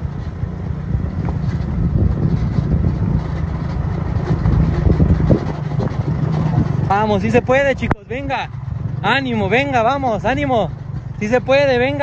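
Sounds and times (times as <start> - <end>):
wind on microphone: 0.0 - 9.2
motorcycle engine rumble: 0.0 - 12.0.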